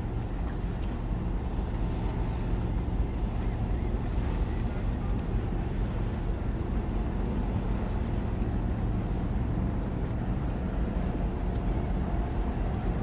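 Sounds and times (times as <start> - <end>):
low ship hum: 0.0 - 13.0
wind on microphone: 0.0 - 13.0.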